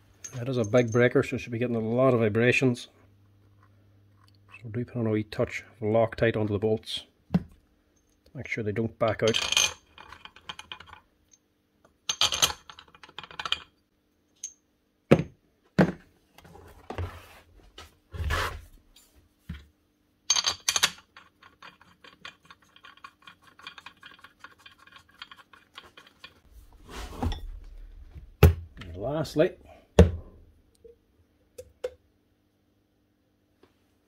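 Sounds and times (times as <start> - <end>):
bolts and tools clinking on metal: 0.2 - 1.2, 14.4 - 14.6, 20.3 - 26.4.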